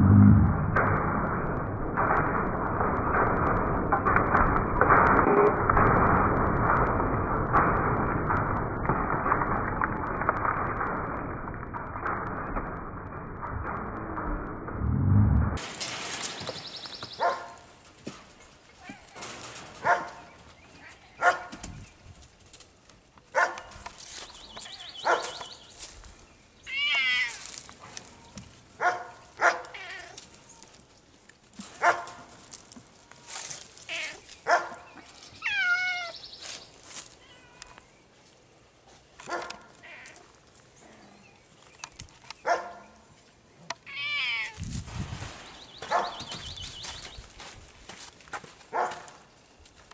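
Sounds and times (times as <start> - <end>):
cats calling: 26.6 - 27.6, 29.4 - 30.8, 33.1 - 34.4, 35.1 - 37.9, 43.8 - 44.6.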